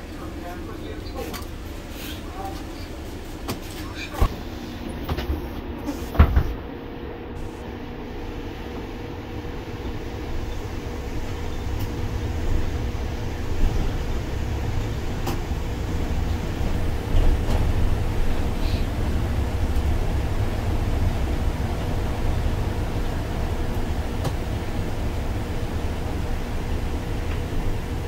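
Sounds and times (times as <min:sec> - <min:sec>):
bus engine and road rumble: 0:00.0 - 0:28.0.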